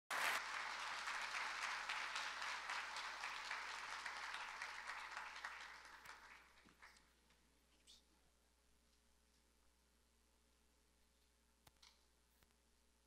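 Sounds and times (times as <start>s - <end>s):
audience applauding: 0.1s - 7.1s.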